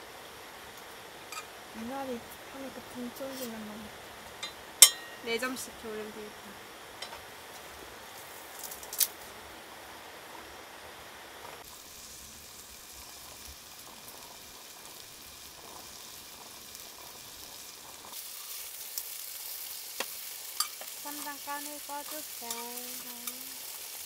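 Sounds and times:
food sizzling in a skillet: 0.0s - 24.0s
sharp clink: 4.4s - 5.2s.

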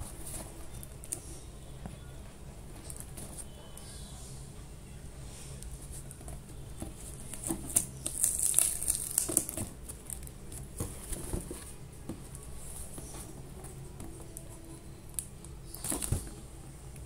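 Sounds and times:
cardboard box knocks and scrapes: 10.7s - 11.7s.

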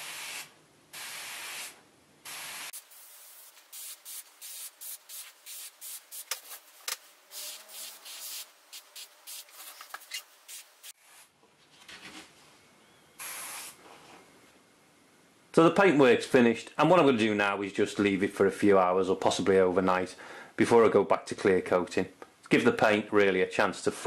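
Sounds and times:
airbrush spraying hiss: 0.0s - 11.0s, 13.2s - 13.8s.

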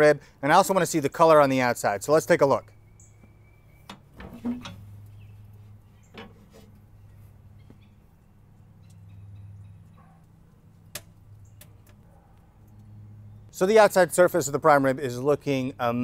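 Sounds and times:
heavy metal lid clunk: 3.9s - 4.9s.

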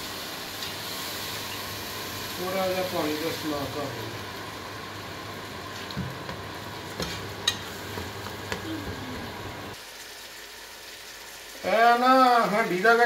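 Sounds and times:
masala sizzling in a pot: 0.0s - 13.0s.

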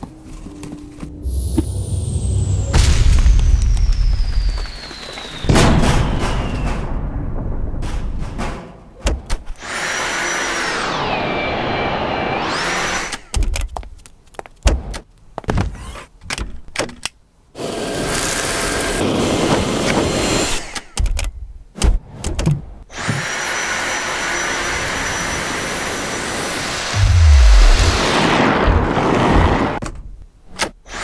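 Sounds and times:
vacuum cleaner suction whine: 9.7s - 13.1s.

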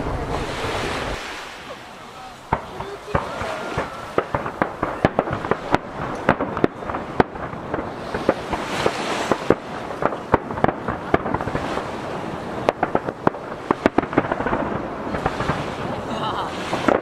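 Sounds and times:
sea waves washing against jetty: 0.0s - 17.0s
fireworks shells bursting: 2.4s - 15.8s.

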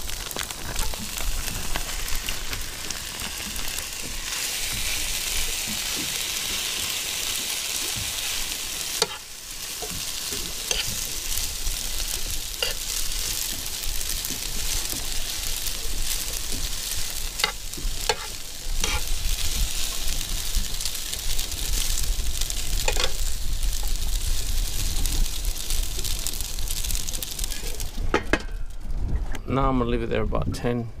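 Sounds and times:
food sizzling in a skillet: 0.0s - 28.4s
spatula scraping a pan: 5.7s - 19.4s.

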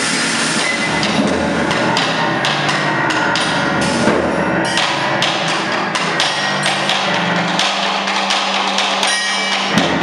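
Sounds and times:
harsh noise wash: 0.0s - 10.0s
irregular percussive knocks: 0.7s - 10.0s.

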